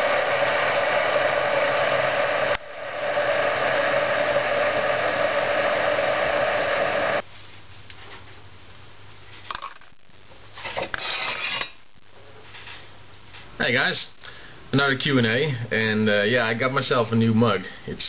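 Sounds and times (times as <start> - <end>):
coffee machine pump humming: 0.0 - 7.2
mug scraping on metal tray: 10.6 - 11.8.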